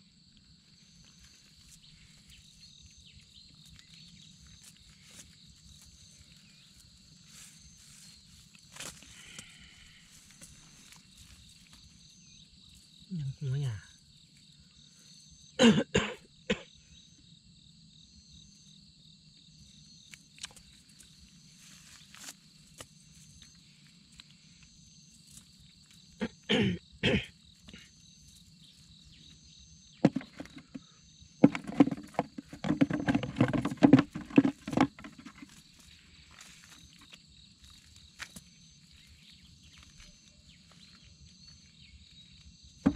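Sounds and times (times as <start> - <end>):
insect trill: 0.0 - 42.9
man coughing: 15.6 - 16.7, 26.2 - 27.9
rustling and knocks: 30.0 - 35.7.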